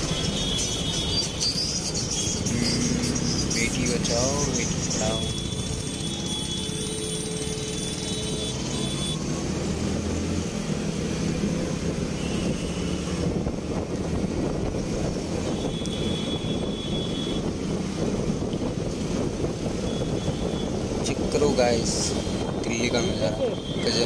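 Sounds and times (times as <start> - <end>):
motorcycle engine accelerating: 1.8 - 16.8
wind rushing over microphone: 9.2 - 24.0.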